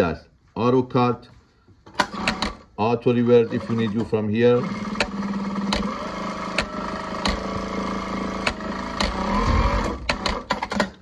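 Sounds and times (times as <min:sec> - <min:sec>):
sewing machine clicks: 0:01.9 - 0:02.7, 0:03.5 - 0:11.0
sewing machine motor hum: 0:02.0 - 0:02.6, 0:03.2 - 0:11.0.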